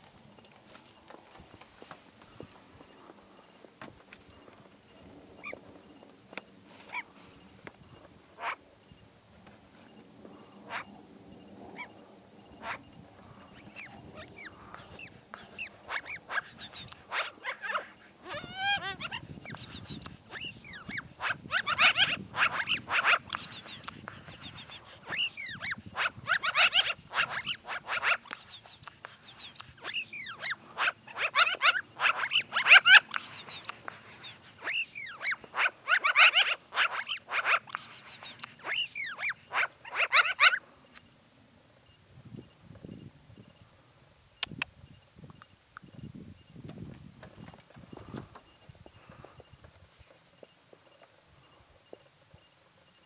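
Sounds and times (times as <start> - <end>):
magpie begging calls: 8.4 - 8.6, 10.6 - 10.9, 12.6 - 12.9, 13.5 - 40.6.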